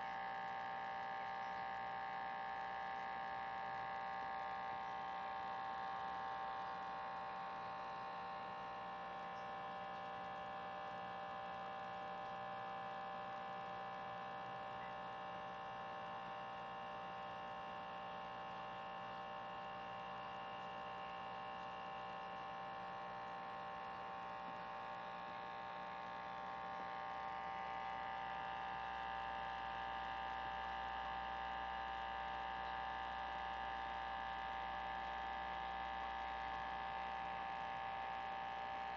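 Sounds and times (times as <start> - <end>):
aquarium filter motor humming: 0.0 - 38.9.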